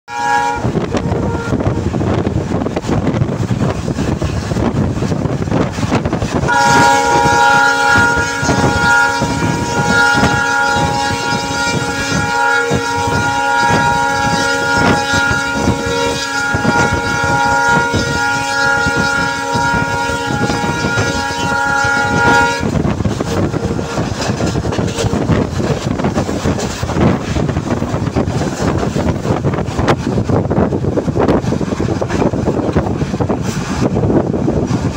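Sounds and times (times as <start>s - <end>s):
locomotive horn long blast: 0.1s - 2.2s, 6.3s - 28.1s
wind rushing over microphone: 0.1s - 34.9s
train wheels clattering over rail joints: 22.0s - 34.9s.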